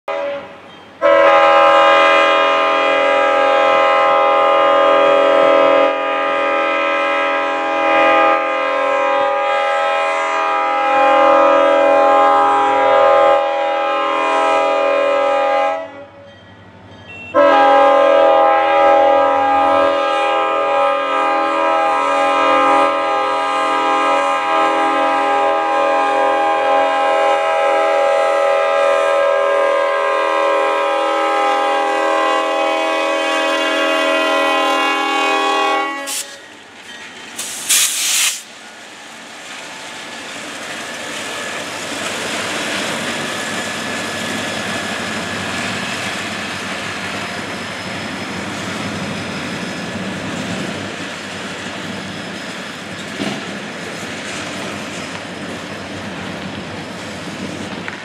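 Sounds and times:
locomotive air horn chord: 0:00.1 - 0:16.2, 0:17.2 - 0:36.4
train engines and wheels rumbling: 0:00.1 - 0:58.0.

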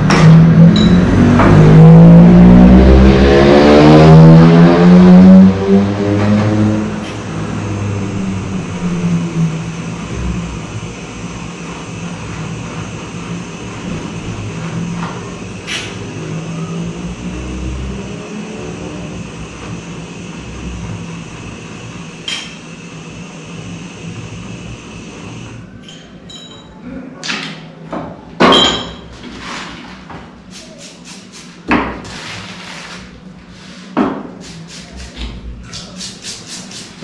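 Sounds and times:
gas torch running: 0:06.8 - 0:25.7.

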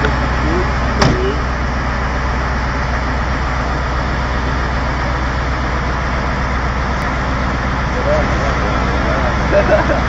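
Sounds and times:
truck diesel engine running: 0:00.0 - 0:10.0.

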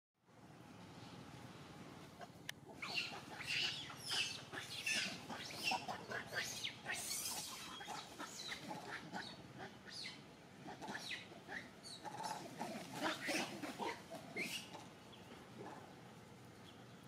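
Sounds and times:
monkeys squeaking and grunting: 0:02.2 - 0:15.0.

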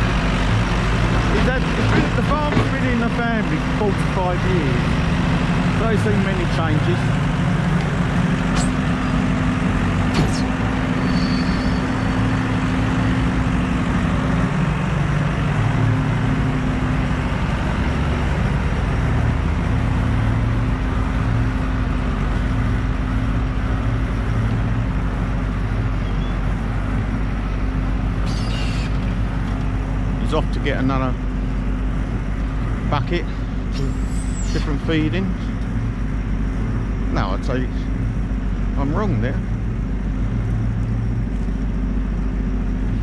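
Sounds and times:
diesel engine droning: 0:00.0 - 0:43.0.

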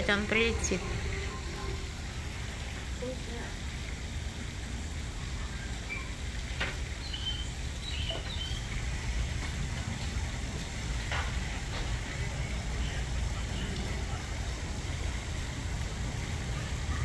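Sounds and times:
low rumble: 0:00.0 - 0:04.8
high bird chirps: 0:07.0 - 0:08.7.

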